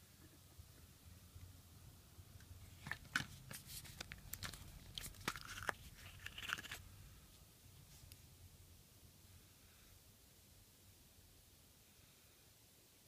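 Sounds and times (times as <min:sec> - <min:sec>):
plastic capsule clicking and creaking: 0:04.0 - 0:06.8.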